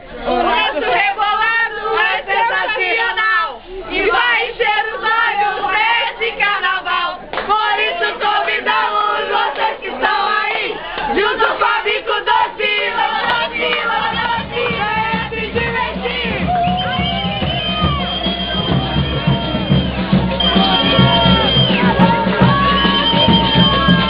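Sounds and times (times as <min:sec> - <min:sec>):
crowd singing and shouting: 0:00.0 - 0:24.0
bass-heavy music beat: 0:13.3 - 0:24.0.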